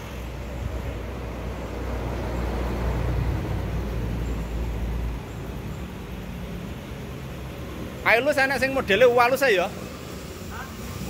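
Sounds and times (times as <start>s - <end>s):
motor vehicle engine rumble: 0.0s - 11.0s.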